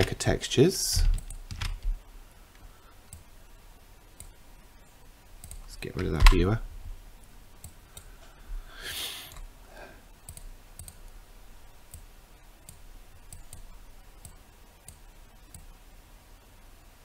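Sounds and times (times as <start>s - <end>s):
computer mouse clicking: 5.4s - 6.4s, 10.2s - 11.1s, 11.9s - 15.8s.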